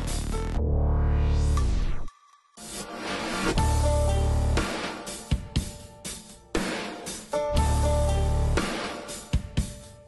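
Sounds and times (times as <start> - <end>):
music with heavy bass and guitar: 0.0 - 1.6, 3.6 - 9.8.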